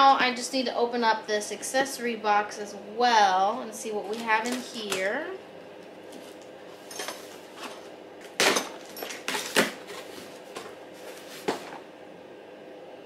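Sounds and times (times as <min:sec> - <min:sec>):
cardboard and tape rustling: 0:03.9 - 0:05.4, 0:06.0 - 0:11.9.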